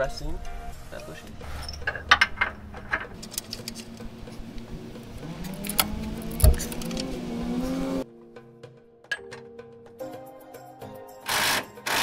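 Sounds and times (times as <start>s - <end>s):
strap creaking rising in pitch: 1.4s - 8.0s.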